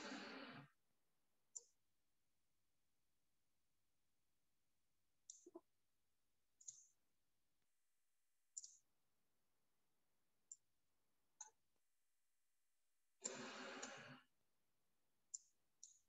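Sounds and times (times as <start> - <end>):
faint mouse clicks: 1.5 - 1.8, 5.2 - 5.7, 6.6 - 7.0, 8.5 - 8.9, 10.4 - 10.7, 11.4 - 11.7, 13.2 - 14.3, 15.3 - 16.0.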